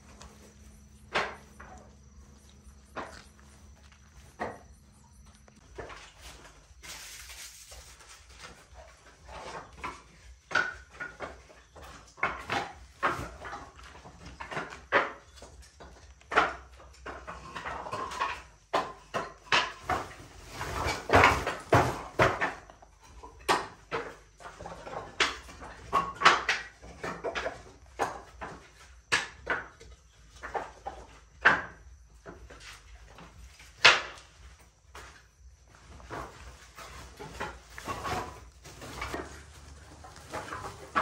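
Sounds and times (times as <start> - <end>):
objects knocking and tapping: 0.0 - 6.5, 8.0 - 41.0
rustling scrape: 5.8 - 10.2, 35.7 - 41.0.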